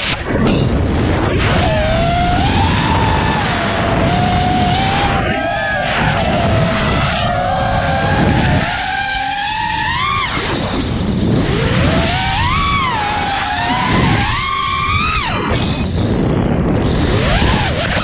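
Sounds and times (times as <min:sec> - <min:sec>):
quadcopter motors whining: 0:00.0 - 0:18.0
wind rumbling on microphone: 0:00.0 - 0:18.0.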